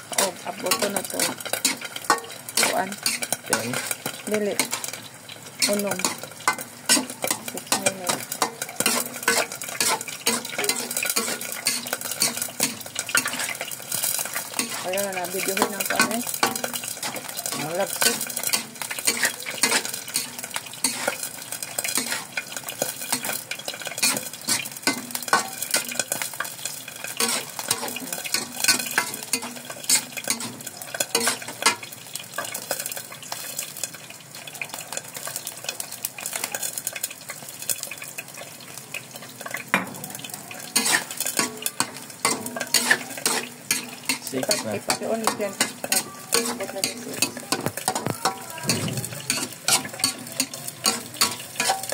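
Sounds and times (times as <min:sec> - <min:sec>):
metal spatula scraping wok: 0:00.0 - 0:33.9, 0:39.2 - 0:51.9
frying sizzle: 0:00.0 - 0:51.9.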